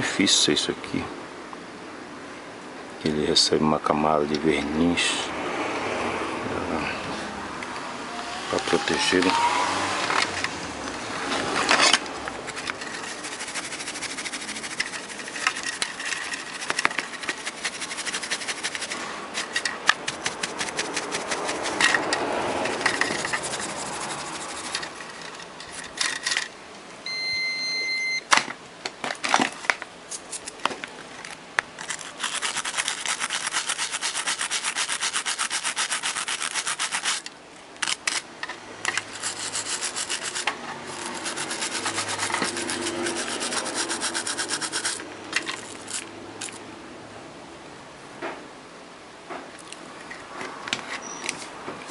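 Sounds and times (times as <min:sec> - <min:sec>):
brush scraping circuit board: 0:08.4 - 0:26.4, 0:31.8 - 0:38.2, 0:38.9 - 0:46.6
short high beep: 0:27.0 - 0:28.2.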